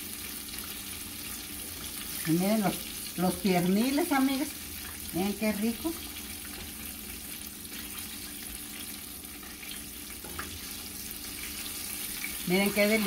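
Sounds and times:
chicken frying in oil: 0:00.0 - 0:13.0.

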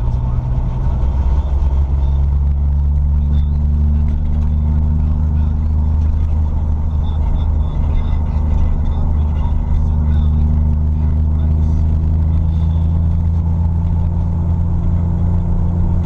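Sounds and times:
car engine drone: 0:00.0 - 0:16.0
tyre and road rumble: 0:00.0 - 0:16.0.

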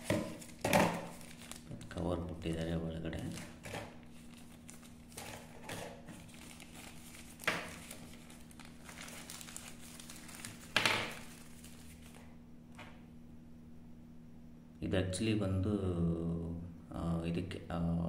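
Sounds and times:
plastic bag crinkling: 0:00.0 - 0:12.3
faint steady hum: 0:00.0 - 0:18.0.

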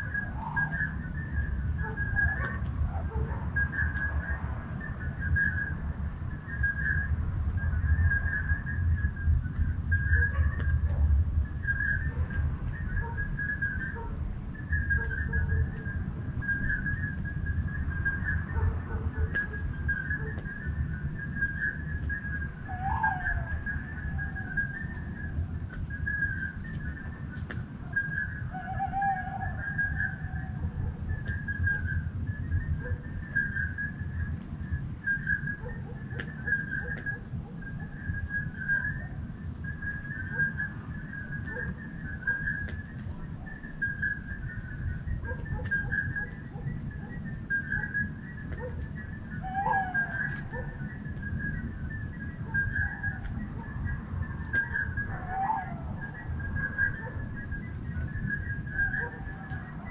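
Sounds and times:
low rumble: 0:00.0 - 0:59.9
high-pitched trilling animal chorus: 0:48.7 - 0:50.8.

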